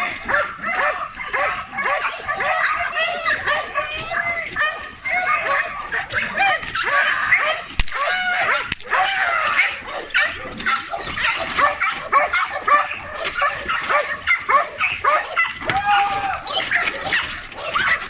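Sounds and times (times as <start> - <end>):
dogs barking aggressively: 0.0 - 18.0
sharp cracks: 7.6 - 9.6.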